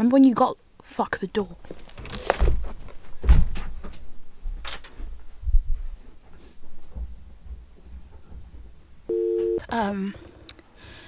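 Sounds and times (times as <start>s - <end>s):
door knocks and thumps: 2.3s - 4.0s.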